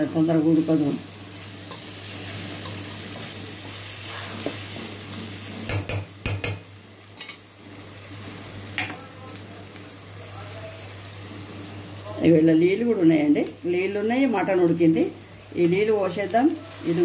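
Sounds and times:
spices sizzling in a pan: 0.0 - 17.0
spoon stirring and scraping: 1.3 - 5.9.

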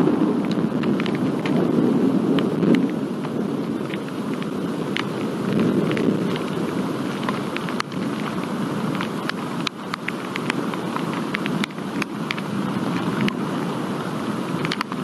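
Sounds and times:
low rumble of thunder: 0.0 - 9.2
raindrops ticking on microphone: 0.0 - 15.0.

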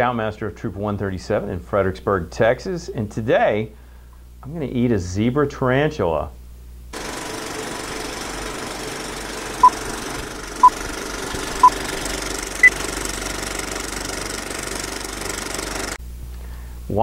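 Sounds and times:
film projector clatter: 7.0 - 16.0.

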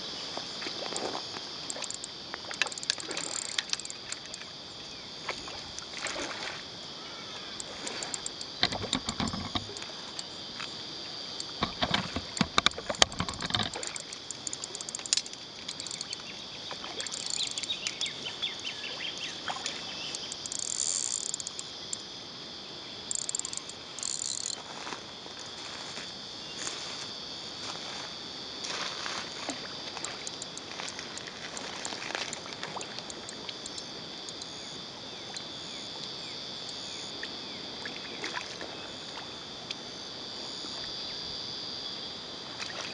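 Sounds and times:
high insect chorus: 0.0 - 42.9
fish thrashing and splashing: 1.7 - 4.4, 11.6 - 16.2.

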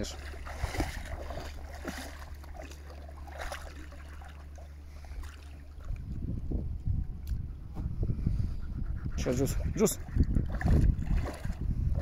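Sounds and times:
water splashing and lapping: 0.0 - 6.6, 9.0 - 12.0
low rumble: 0.0 - 12.0.

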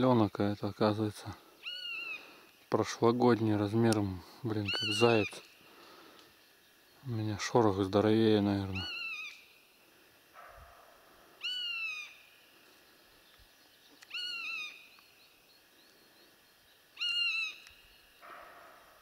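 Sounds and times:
fainter lower animal calls: 1.5 - 2.5, 8.7 - 9.7, 10.4 - 13.2, 13.9 - 19.0
high whistled mewing animal call: 1.6 - 2.4, 4.6 - 5.5, 8.7 - 9.5, 10.4 - 12.4, 14.0 - 15.1, 16.9 - 19.0.

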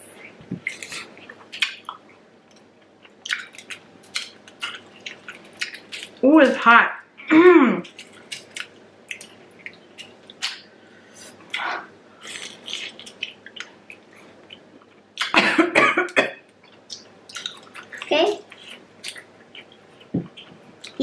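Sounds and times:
chewing: 0.6 - 6.2, 7.9 - 10.6, 11.5 - 15.4, 16.5 - 21.0
person coughing: 15.3 - 16.4.

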